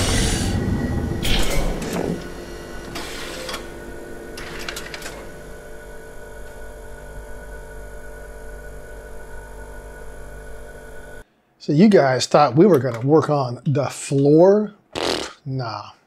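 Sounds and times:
machine whirring and clicking: 0:00.0 - 0:06.6.

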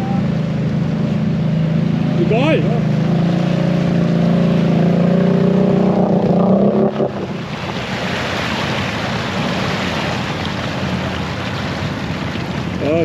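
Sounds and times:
quad bike engine running: 0:00.0 - 0:07.2
water rushing and churning: 0:00.0 - 0:13.0.

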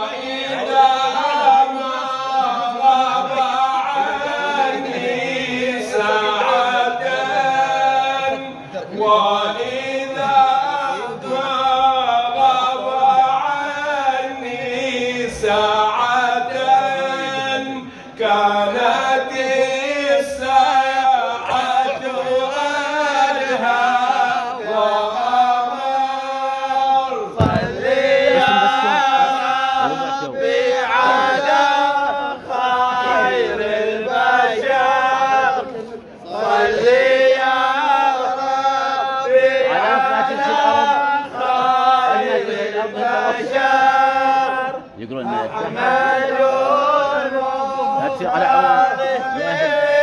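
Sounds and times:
men chanting devotional song: 0:00.0 - 0:50.0
low thump: 0:27.4 - 0:28.3.

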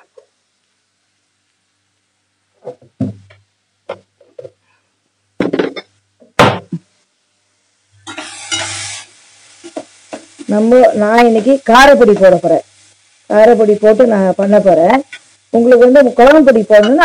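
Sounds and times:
onion and tomato frying in oil: 0:00.0 - 0:17.0
kitchen utensils knocking and clinking: 0:08.0 - 0:08.8.

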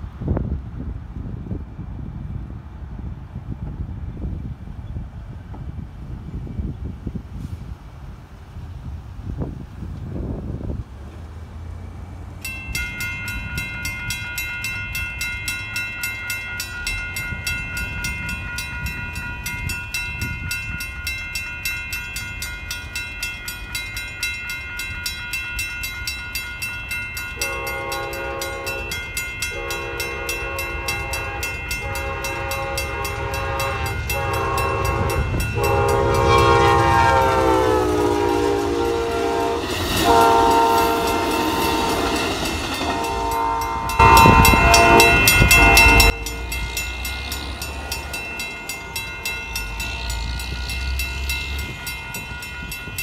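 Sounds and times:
train rumble: 0:00.0 - 0:53.0
mechanical crossing bell ringing: 0:12.4 - 0:53.0
train horn blasts: 0:27.4 - 0:53.0.

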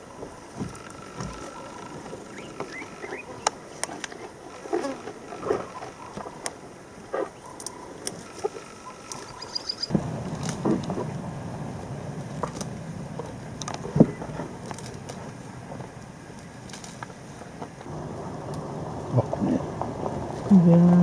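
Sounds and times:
high bird trill: 0:01.0 - 0:03.5, 0:08.7 - 0:09.9
short bird calls: 0:08.8 - 0:09.9
steady low rumble: 0:09.6 - 0:21.0.

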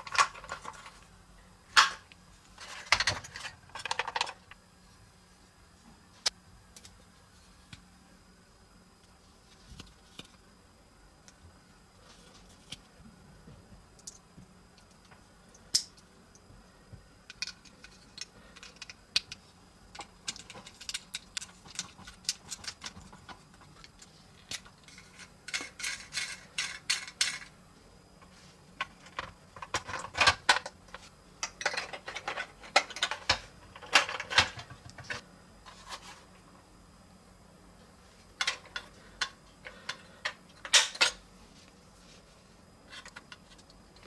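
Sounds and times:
plastic parts clicking together: 0:17.3 - 0:27.5.

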